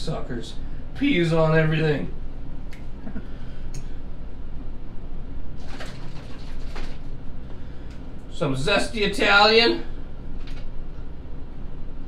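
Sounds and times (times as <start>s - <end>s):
bottle shaking and rustling: 5.6s - 7.2s.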